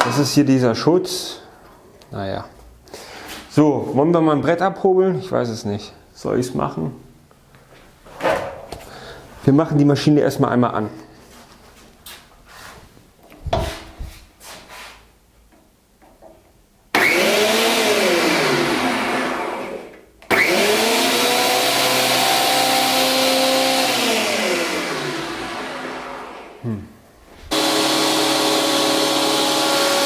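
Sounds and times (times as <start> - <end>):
planer motor whining: 17.0 - 26.6, 27.5 - 30.0.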